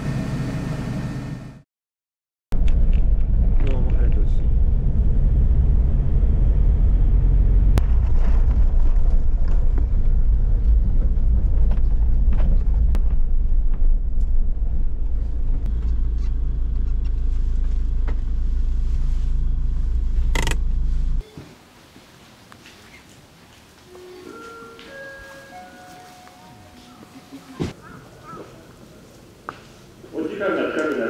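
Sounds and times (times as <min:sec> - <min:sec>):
engine rumbling: 0:02.5 - 0:21.2.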